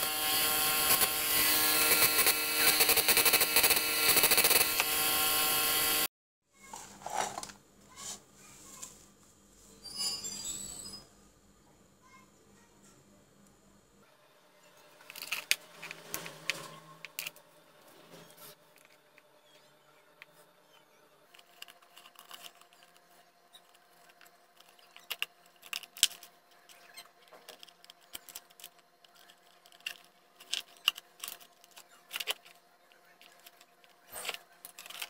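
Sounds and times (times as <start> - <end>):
clicks and rattles of handled parts: 21.3 - 35.0.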